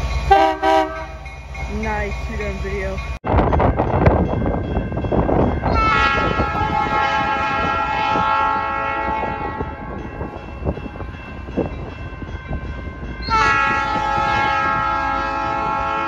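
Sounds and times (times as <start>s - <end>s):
train rumble: 0.0s - 16.0s
locomotive air horn blast: 0.3s - 1.2s, 5.7s - 10.0s, 13.3s - 16.0s.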